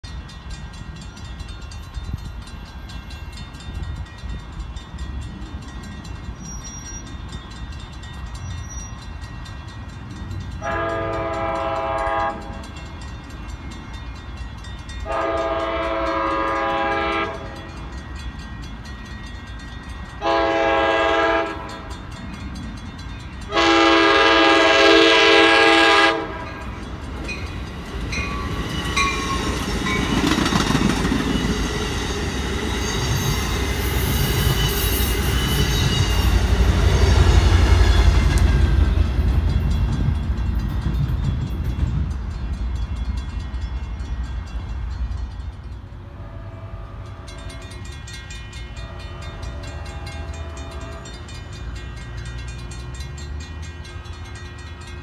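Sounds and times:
train rumble and wheel noise: 0.0 - 55.0
train horn blasts: 10.6 - 12.8, 15.0 - 17.8, 20.2 - 22.0, 23.4 - 26.8, 46.0 - 47.9, 48.8 - 51.3.

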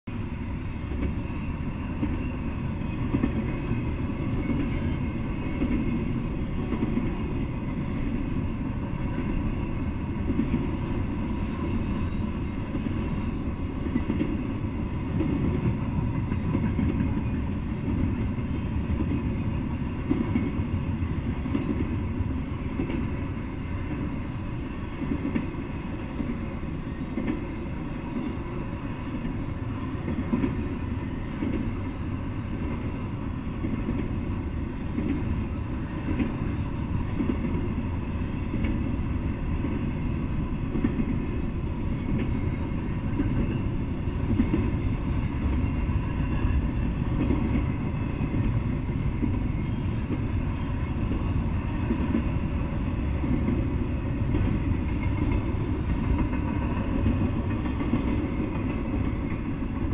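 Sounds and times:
freight train wheels rumbling: 0.0 - 59.9.

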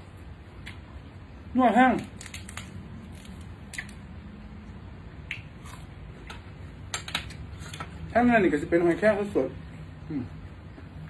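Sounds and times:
wet mouth clicks: 5.2 - 6.4
food crunching while chewing: 5.3 - 6.4.

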